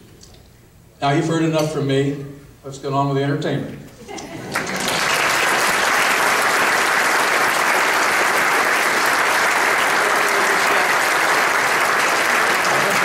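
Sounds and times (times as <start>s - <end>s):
audience applauding: 4.4s - 13.0s.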